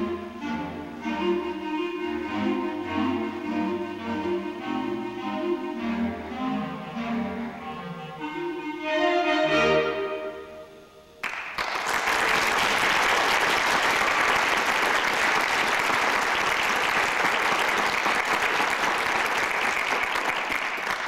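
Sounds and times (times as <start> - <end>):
clarinet choir chord: 0.0 - 11.2
audience applause: 11.2 - 21.0.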